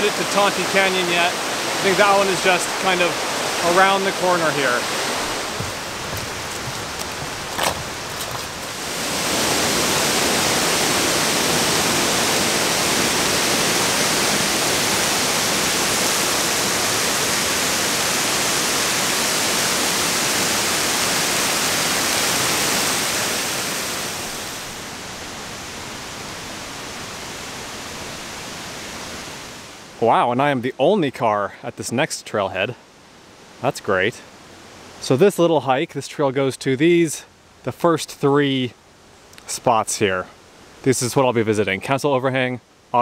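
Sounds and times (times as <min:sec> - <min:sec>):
waterfall pouring: 0:00.0 - 0:24.7.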